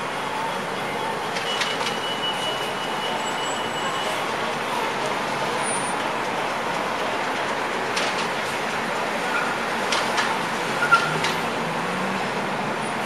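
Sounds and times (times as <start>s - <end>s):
bus driving past: 0.0s - 13.0s
street traffic noise: 0.0s - 13.0s.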